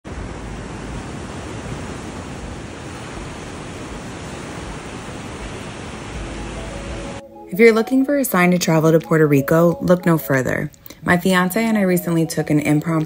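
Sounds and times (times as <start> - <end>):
small waves washing onto sand: 0.1 - 7.2.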